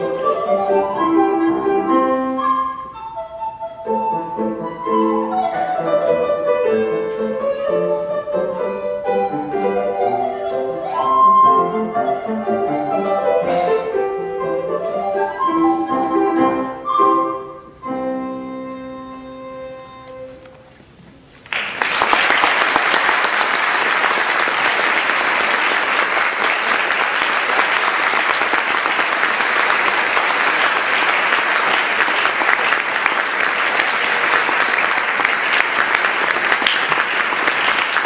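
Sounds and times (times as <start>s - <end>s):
alto recorder with piano: 0.0s - 20.6s
audience applause: 21.4s - 38.0s.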